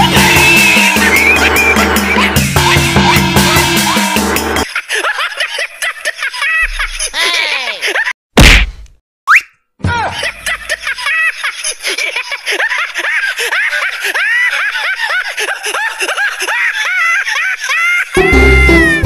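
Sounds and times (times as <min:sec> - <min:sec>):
rising whistle: 0:00.2 - 0:01.9.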